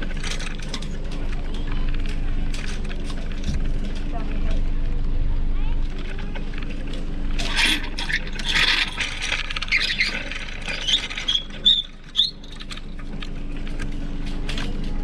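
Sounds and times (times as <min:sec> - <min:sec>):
short high squeaks: 0:07.4 - 0:12.7.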